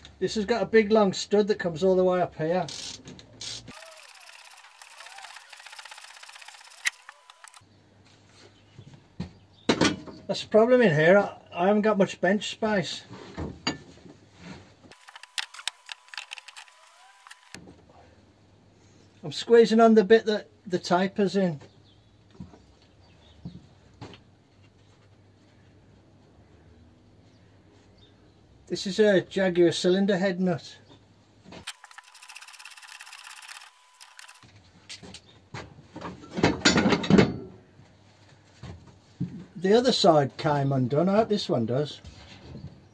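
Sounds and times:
impact wrench rattling: 2.7 - 7.3
metal clanks and knocks: 36.1 - 37.5.

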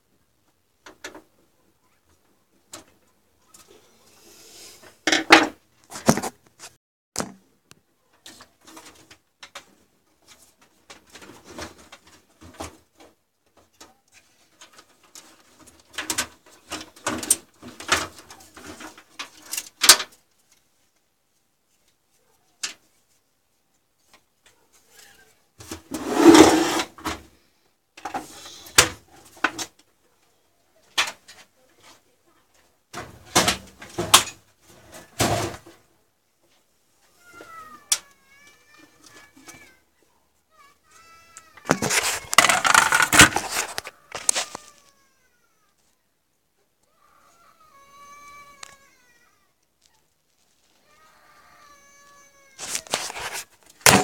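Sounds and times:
clatter and scrape: 24.9 - 27.2, 33.3 - 35.8, 41.7 - 44.7, 52.6 - 54.0.

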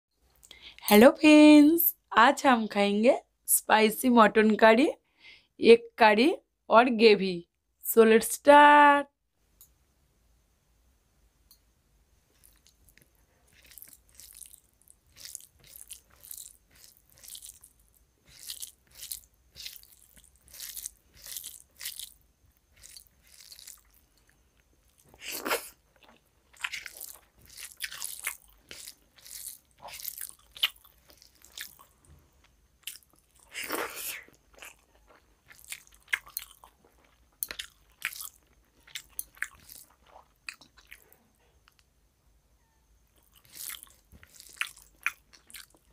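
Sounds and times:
person chewing food: 12.3 - 41.9, 43.1 - 45.9.

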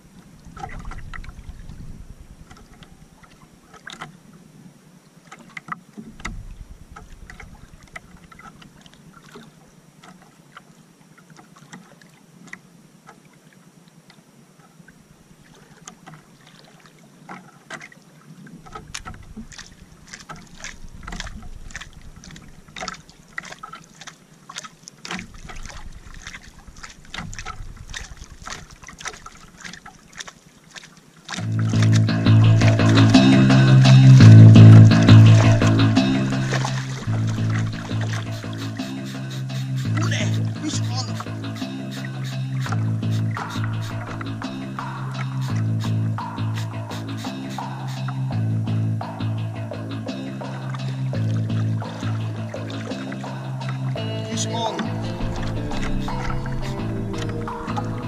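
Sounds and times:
wind on microphone: 0.0 - 3.4, 6.1 - 8.8, 18.6 - 22.9, 25.3 - 29.4
water lapping against canoe: 0.0 - 58.0.

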